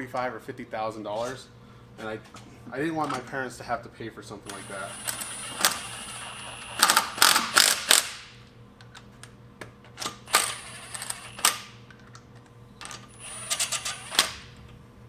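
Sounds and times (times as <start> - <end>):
impact wrench rattling bursts: 4.5 - 8.4, 10.2 - 11.7.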